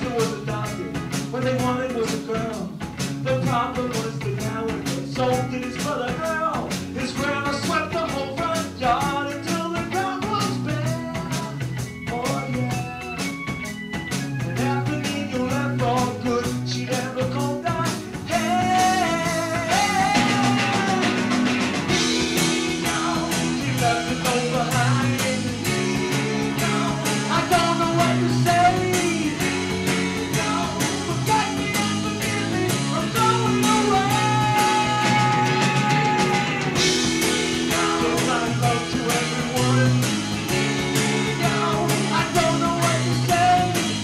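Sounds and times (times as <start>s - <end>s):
live rock song: 0.0s - 44.0s.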